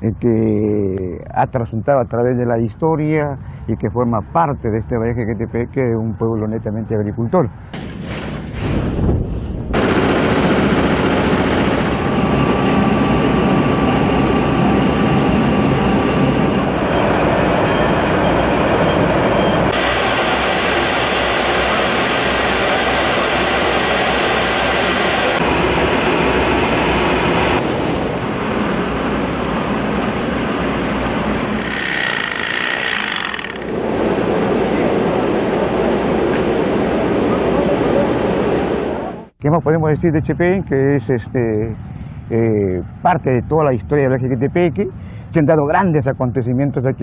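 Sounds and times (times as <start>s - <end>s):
mill machinery din: 9.7s - 39.2s
faint machine whines: 11.9s - 39.1s.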